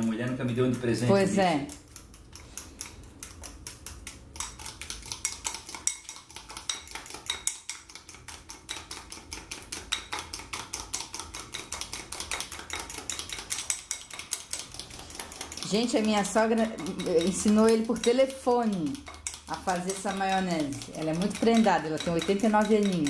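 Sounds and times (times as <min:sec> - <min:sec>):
utensil beating in a bowl: 0:00.0 - 0:23.0.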